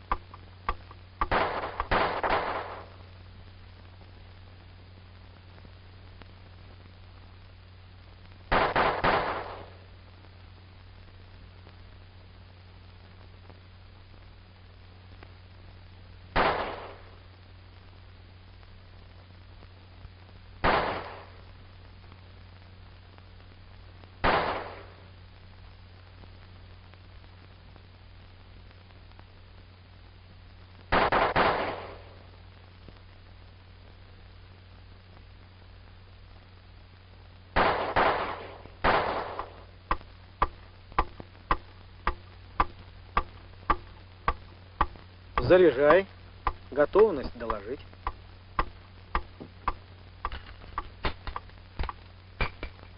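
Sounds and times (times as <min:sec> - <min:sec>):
pistol shots with echo: 0:01.2 - 0:02.8, 0:08.5 - 0:09.6, 0:20.6 - 0:21.2.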